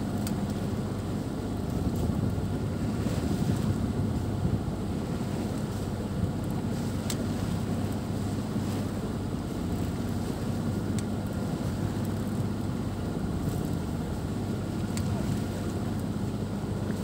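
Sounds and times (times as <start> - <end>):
water rushing along hull: 0.0 - 17.0
wind buffeting microphone: 1.7 - 6.5.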